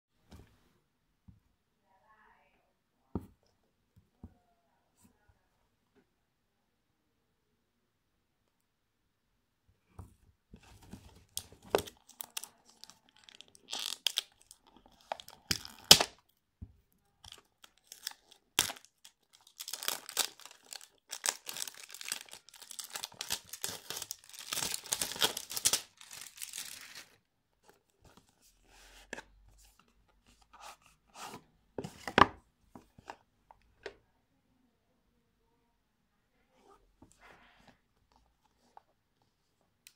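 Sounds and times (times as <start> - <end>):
shrink-wrap crinkling: 11.3 - 16.1, 17.3 - 27.2.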